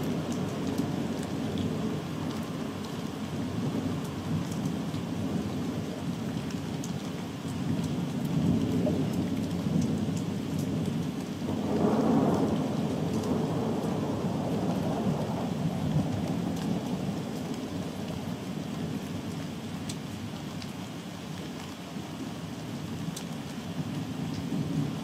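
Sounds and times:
falling rain: 0.0s - 25.0s
rolling thunder rumbling: 10.8s - 17.3s.

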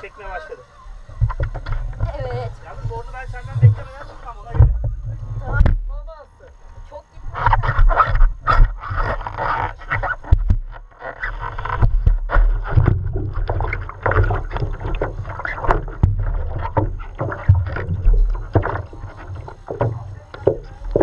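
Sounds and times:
water splashing and lapping: 7.4s - 21.0s.

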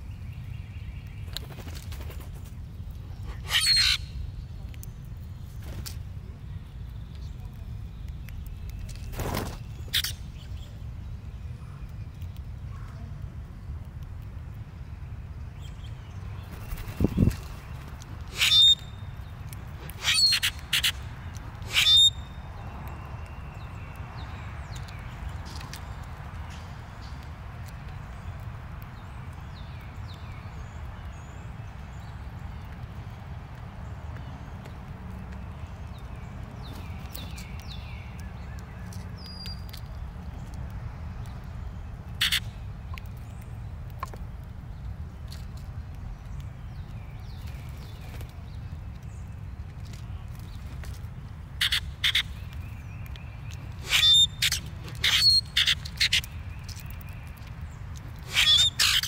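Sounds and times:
blackbirds harsh calls: 0.1s - 6.0s, 7.6s - 13.2s, 14.8s - 40.6s, 41.2s - 45.5s, 46.1s - 59.0s
loud bird rasp: 3.2s - 4.1s, 18.3s - 18.8s, 19.9s - 20.9s, 21.7s - 22.1s, 42.2s - 42.4s, 53.8s - 56.2s, 58.2s - 59.0s
falling bird chirps: 3.2s - 4.2s, 16.4s - 22.5s, 51.6s - 59.0s
beaks pecking at seed tray: 45.2s - 59.0s.

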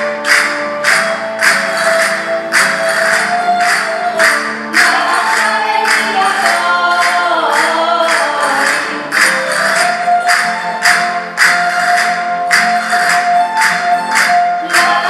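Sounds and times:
sharp rattling percussion: 0.0s - 15.0s
string band playing folk music: 0.0s - 15.0s
person singing: 4.7s - 9.3s, 14.6s - 15.0s.

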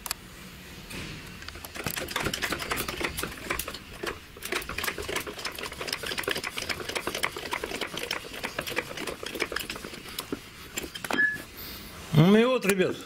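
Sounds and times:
trolley jack pumping clicks: 1.5s - 11.4s.

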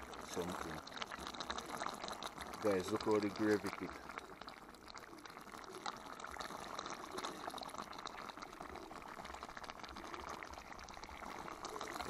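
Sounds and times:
gravy simmering in a pot: 0.0s - 12.0s
ladle pouring gravy: 0.0s - 12.0s.

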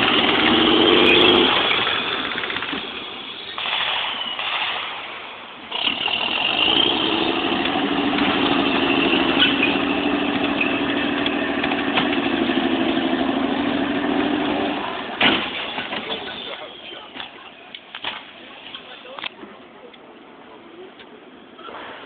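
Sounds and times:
vehicle engine humming: 0.0s - 22.0s.

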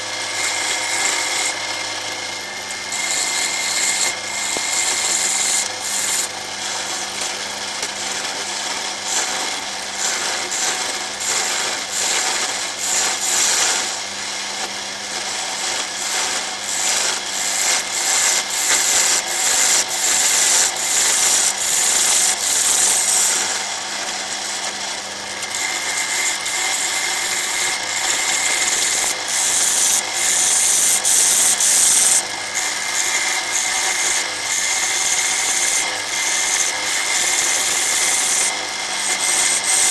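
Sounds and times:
lathe motor hum: 0.0s - 7.7s, 8.7s - 39.9s
lathe tool scraping wood: 0.0s - 39.9s.

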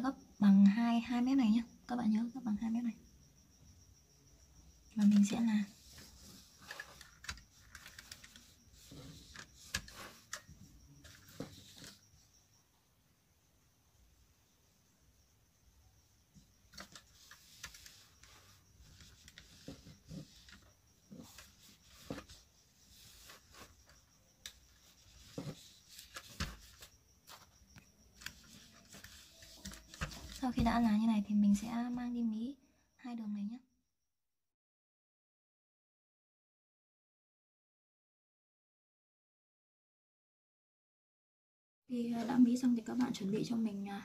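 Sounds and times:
cloth rustling: 5.0s - 12.0s, 16.7s - 24.0s, 24.7s - 27.6s, 28.2s - 30.8s
iron rubbing over fabric: 5.0s - 12.3s, 16.8s - 31.0s.

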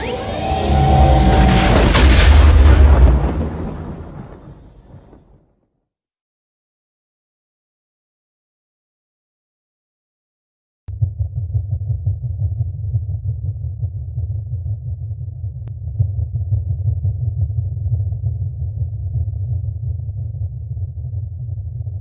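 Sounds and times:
deep low drone rumble: 0.0s - 5.0s, 10.9s - 22.0s.

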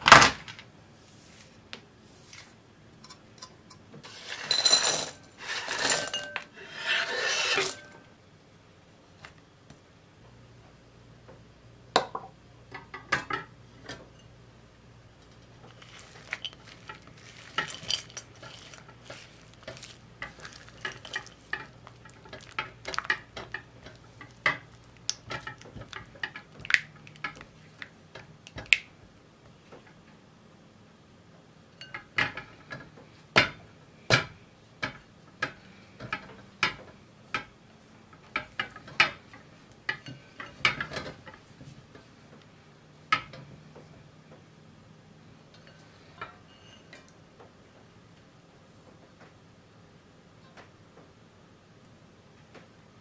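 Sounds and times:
spatula scraping glass bowl: 4.0s - 8.0s, 15.7s - 24.8s.

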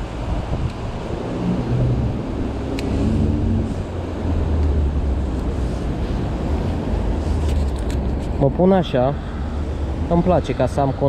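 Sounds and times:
wind buffeting microphone: 0.0s - 8.4s
city traffic rumble: 0.0s - 11.0s.

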